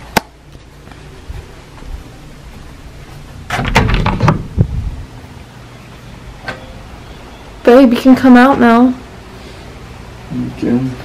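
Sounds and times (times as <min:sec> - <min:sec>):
door unlatching and opening: 0:03.5 - 0:04.6.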